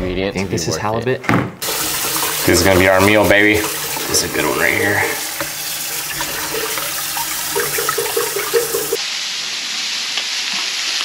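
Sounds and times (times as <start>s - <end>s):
tap water running into sink: 1.6s - 9.0s
food sizzling in frying pan: 1.6s - 11.0s.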